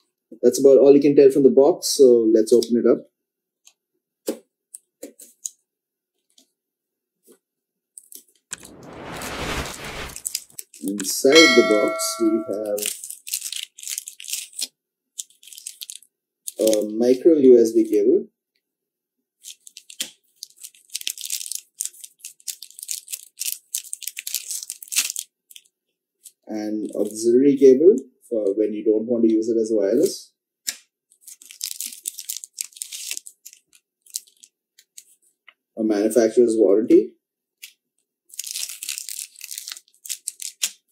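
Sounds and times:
plastic bag crinkling: 38.4s - 40.5s.

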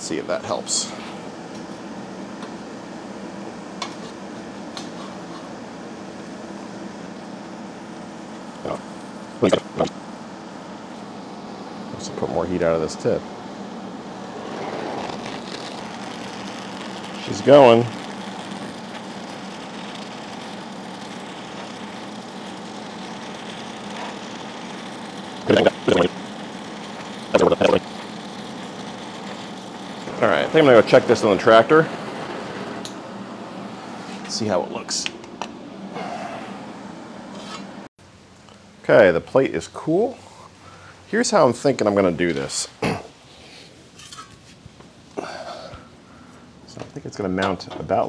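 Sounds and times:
torch flame hissing: 0.0s - 37.9s, 45.1s - 46.6s
low hum: 5.6s - 37.9s.

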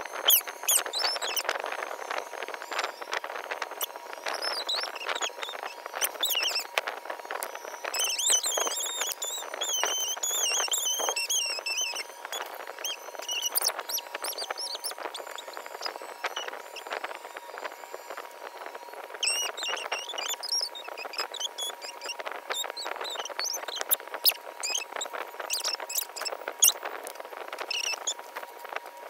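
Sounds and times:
high wavering chirps: 0.0s - 28.3s.

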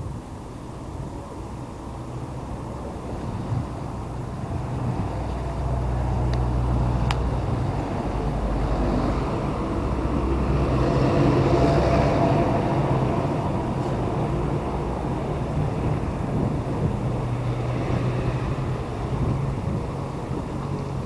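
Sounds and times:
vehicle driving past: 4.6s - 21.0s.

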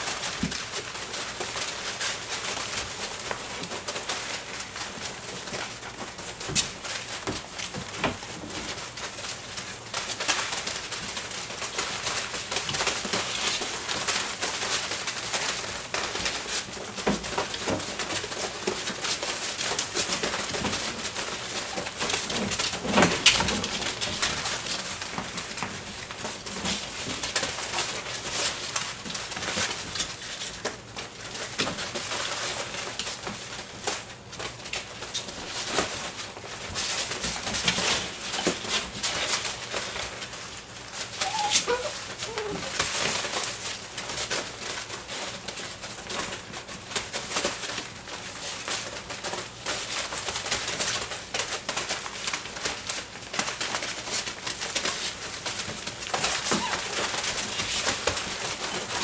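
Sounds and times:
puppies scratching in shavings: 0.0s - 59.0s
puppies growling playfully: 41.2s - 42.8s
puppy yipping: 41.2s - 42.8s, 56.5s - 57.0s.

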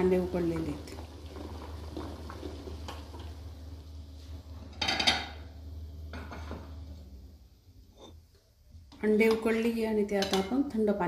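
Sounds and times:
water boiling in pot: 0.0s - 11.0s
metallic clatter of pots: 4.7s - 5.4s.

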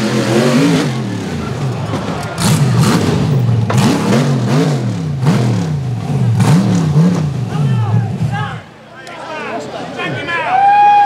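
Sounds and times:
buggy engine revving: 0.0s - 8.8s.

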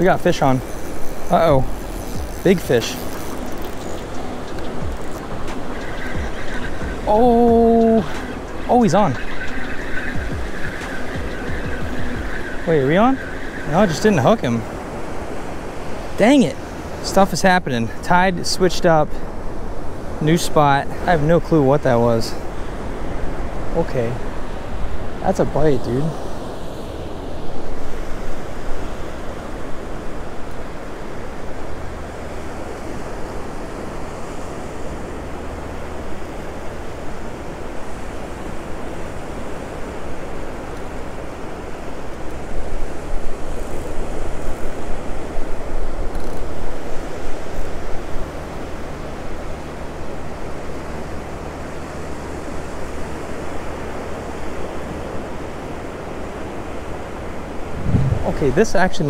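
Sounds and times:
wind buffeting microphone: 0.0s - 16.1s, 57.4s - 59.0s
ocean surf washing onto beach: 0.0s - 59.0s.

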